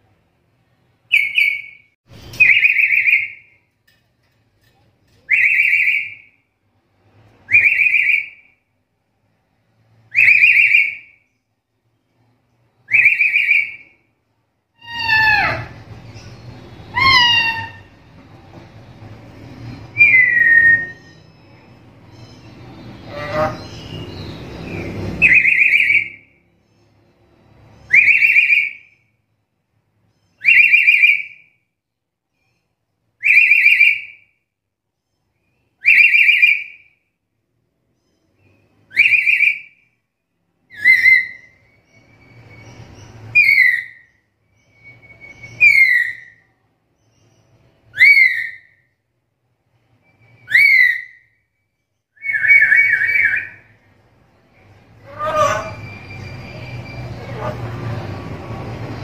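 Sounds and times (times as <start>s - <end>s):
parrot whistle-like call: 7.5s - 8.5s, 10.1s - 11.2s, 12.9s - 13.9s, 14.8s - 15.8s, 16.9s - 17.9s, 20.0s - 21.3s, 27.9s - 28.9s, 30.4s - 31.5s, 35.8s - 36.9s, 38.9s - 39.8s, 40.7s - 42.6s, 43.3s - 46.4s, 47.9s - 48.8s, 50.2s - 51.3s, 52.2s - 53.8s, 55.0s - 57.6s.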